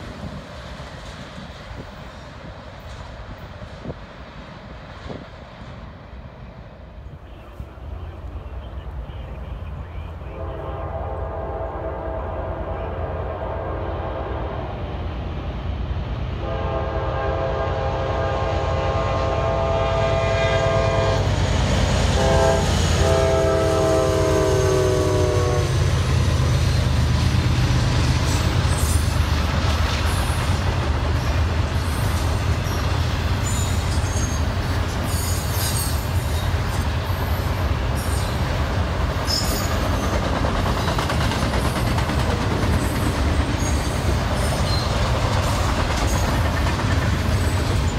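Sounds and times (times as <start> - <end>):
train rumbling and clacking: 0.0 - 47.9
locomotive air horn: 10.3 - 14.7, 16.4 - 21.3, 22.2 - 25.8
high wheel squeals: 31.2 - 36.5, 39.3 - 40.1.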